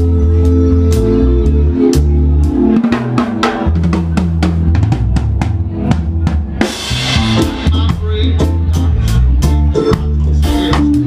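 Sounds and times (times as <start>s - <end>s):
live band playing instrumental: 0.0s - 11.0s
drum kit hits: 2.9s - 11.0s.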